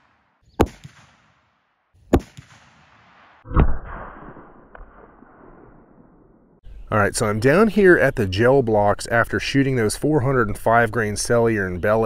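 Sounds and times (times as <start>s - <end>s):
rifle shots: 0.0s - 6.2s.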